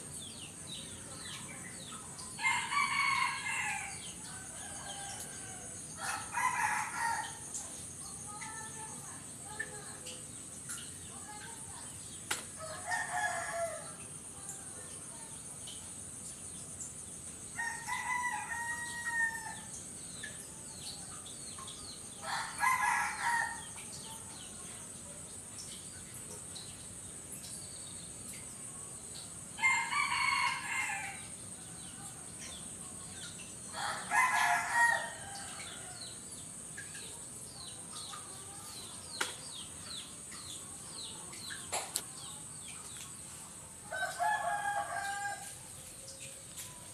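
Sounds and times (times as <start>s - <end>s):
steady high hiss: 0.0s - 46.9s
rooster crowing: 2.4s - 7.4s, 17.6s - 19.7s, 29.6s - 31.3s, 33.8s - 35.9s, 43.9s - 45.6s.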